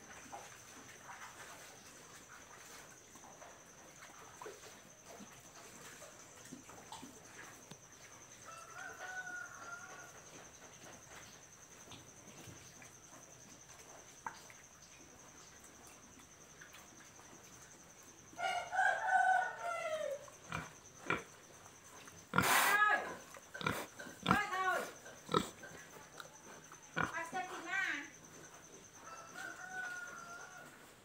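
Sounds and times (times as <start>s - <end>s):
rooster crowing: 8.4s - 10.2s, 18.4s - 20.3s, 29.0s - 31.0s
pig feeding faint clicks: 10.6s - 18.1s.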